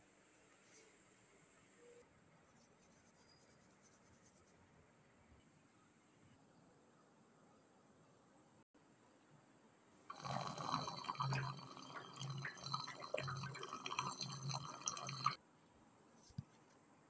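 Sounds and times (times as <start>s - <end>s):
water pouring into plastic tub: 10.1s - 15.4s.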